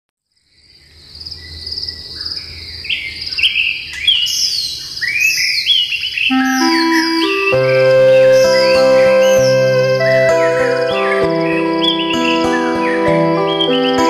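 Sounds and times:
birds chirping: 0:00.6 - 0:14.0
insects trilling: 0:06.3 - 0:14.0.

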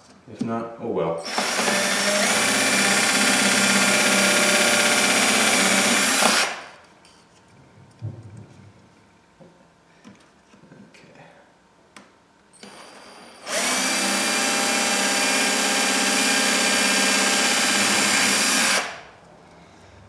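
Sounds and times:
cordless drill drilling acrylic: 0:01.2 - 0:06.6, 0:12.6 - 0:19.1.

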